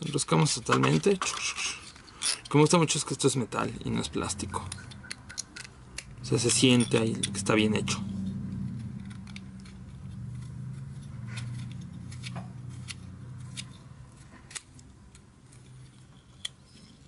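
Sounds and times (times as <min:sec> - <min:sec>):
metal mount clicking while screwed: 0:04.4 - 0:07.4, 0:08.7 - 0:17.0.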